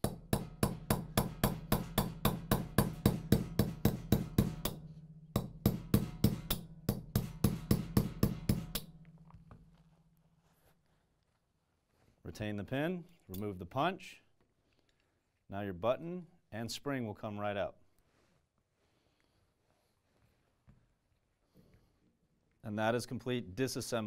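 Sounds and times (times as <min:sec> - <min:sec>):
hammer tapping a metal punch: 0:00.0 - 0:09.7.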